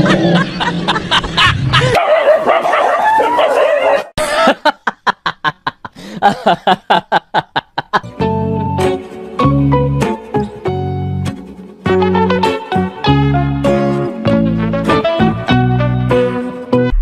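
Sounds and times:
rhythmic laughter: 0.0s - 2.0s, 4.2s - 8.1s
background music: 8.0s - 17.0s
music with steady notes: 8.1s - 17.0s.

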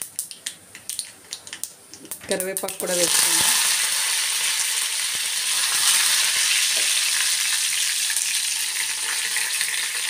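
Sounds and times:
leaves sizzling in hot oil: 2.6s - 10.0s.

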